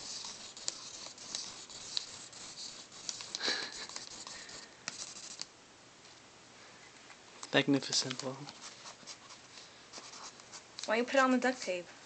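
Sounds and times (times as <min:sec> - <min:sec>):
pen scratching on paper: 0:00.0 - 0:05.4, 0:08.5 - 0:10.6.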